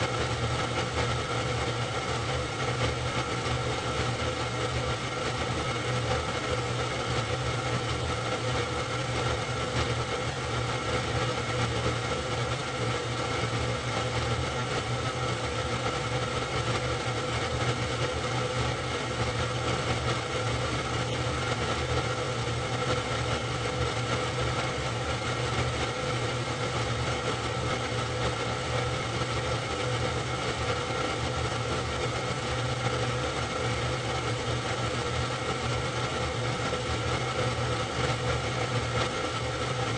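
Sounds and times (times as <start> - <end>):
film projector whirring: 0.0 - 39.9.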